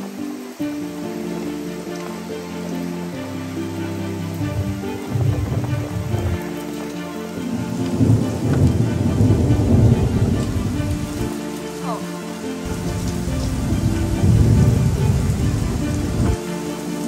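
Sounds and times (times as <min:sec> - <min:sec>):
heavy rain on pavement: 0:00.0 - 0:17.0
deep thunder rumble: 0:04.4 - 0:06.8, 0:07.4 - 0:11.4, 0:12.6 - 0:16.4.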